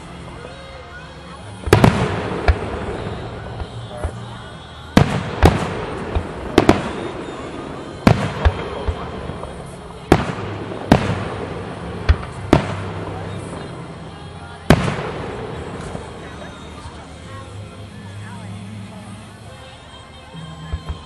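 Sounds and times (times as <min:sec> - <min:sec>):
fireworks bangs echoing: 0:01.5 - 0:17.6.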